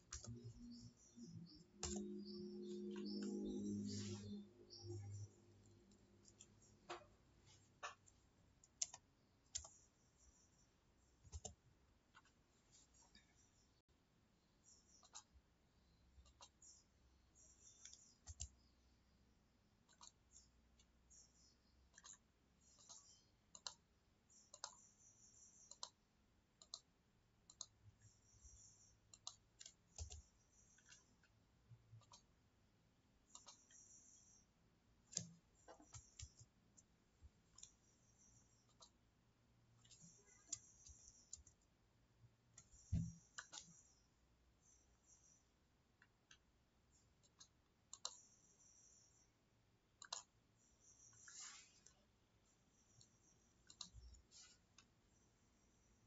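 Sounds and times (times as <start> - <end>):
mouse and keyboard clicks: 0.0 - 7.1, 11.3 - 12.4, 14.7 - 15.3, 16.2 - 16.8, 17.4 - 18.7, 19.8 - 26.0, 26.6 - 26.9, 27.5 - 31.4, 32.0 - 32.3, 33.3 - 34.4, 35.1 - 39.0, 39.8 - 41.7, 42.5 - 44.0, 47.2 - 49.0, 50.0 - 52.0, 52.8 - 54.9.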